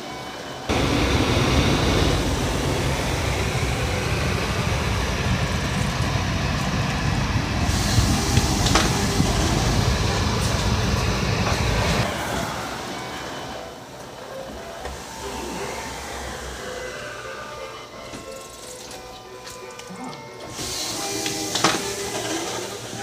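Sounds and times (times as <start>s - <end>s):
vehicle travel rumble and hiss: 0.7s - 17.9s.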